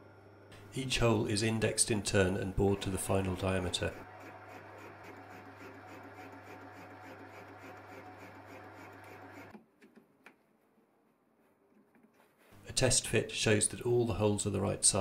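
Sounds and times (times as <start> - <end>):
lathe humming with light hiss: 4.0 - 9.5.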